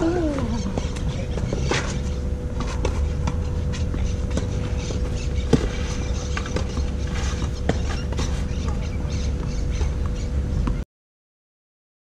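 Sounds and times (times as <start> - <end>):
steady low rumble: 0.0 - 10.8
tennis ball struck by racket: 5.5 - 10.0.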